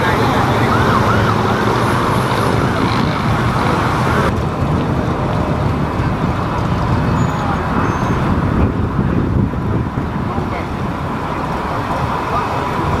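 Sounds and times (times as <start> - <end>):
car engines rumbling past: 0.0 - 13.0
siren wailing: 0.1 - 3.0.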